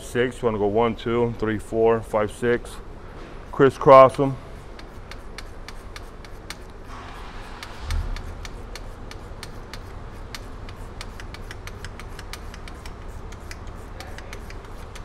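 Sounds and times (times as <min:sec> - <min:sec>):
steady low hum: 0:00.0 - 0:15.0
ratcheting wrench clicking: 0:07.6 - 0:15.0.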